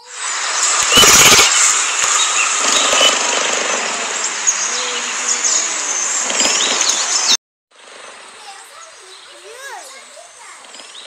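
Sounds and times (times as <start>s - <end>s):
high chirps: 0.0s - 3.6s.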